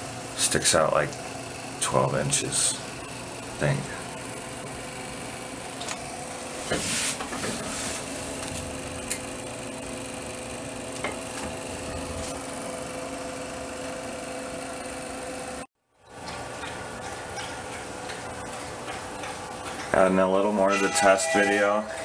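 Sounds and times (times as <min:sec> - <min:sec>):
steady hum and hiss: 0:00.0 - 0:13.4.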